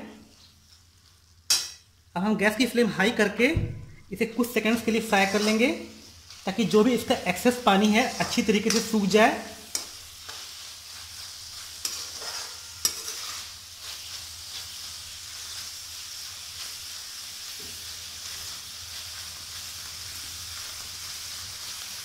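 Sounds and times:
vegetables sizzling in oil: 0.0 - 3.5, 4.2 - 22.0
metal spoon clinking on pan: 1.5 - 1.8, 11.8 - 13.4.

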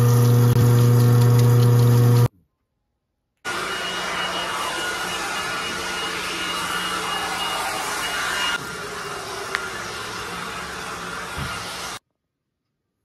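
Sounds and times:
leaf blower running: 3.5 - 12.0
loud steady hum: 3.5 - 12.0.

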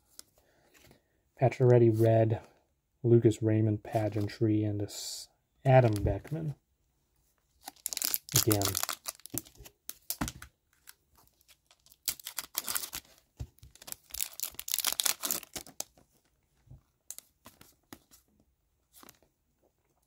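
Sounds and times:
wrapper crinkling and tearing: 7.6 - 16.0.

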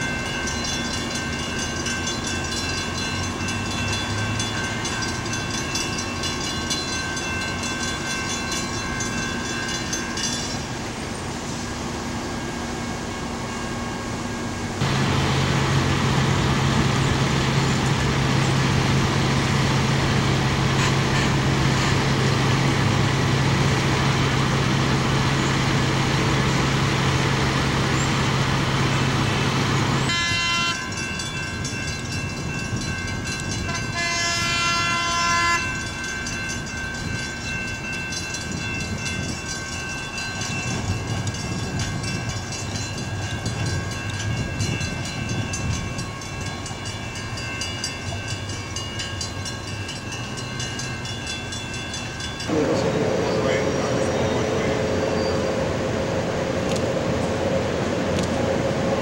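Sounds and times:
tram rolling on track: 0.0 - 59.0
tram horn blast: 20.6 - 22.1, 30.0 - 31.0, 33.5 - 35.9, 52.4 - 59.0
high multi-tone whine: 52.4 - 59.0.

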